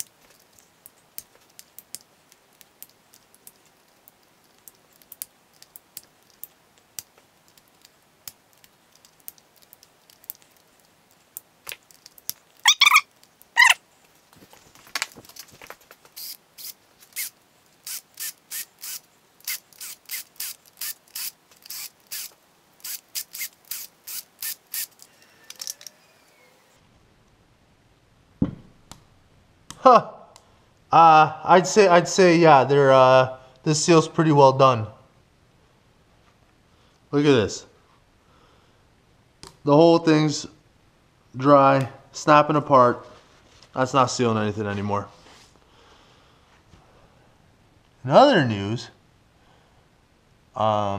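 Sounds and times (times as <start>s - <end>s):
short squeaks: 12.6s - 13.8s
ratchet wrench ratcheting: 17.9s - 25.0s
ratchet wrench clicks: 17.9s - 25.9s.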